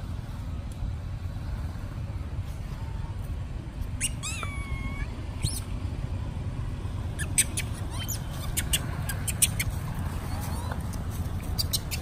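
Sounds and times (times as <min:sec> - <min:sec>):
steady low rumble: 0:00.0 - 0:12.0
monkey high-pitched squeaks: 0:04.0 - 0:05.7, 0:07.2 - 0:12.0.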